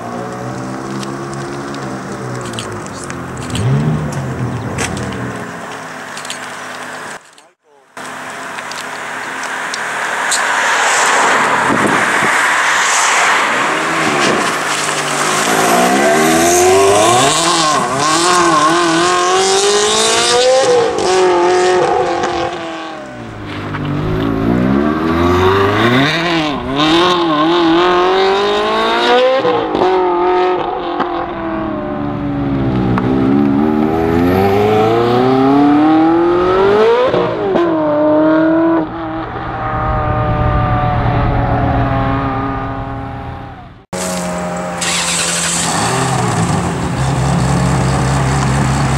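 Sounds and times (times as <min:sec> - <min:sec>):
car engine revving and accelerating: 0:00.0 - 0:07.2, 0:08.4 - 0:48.9.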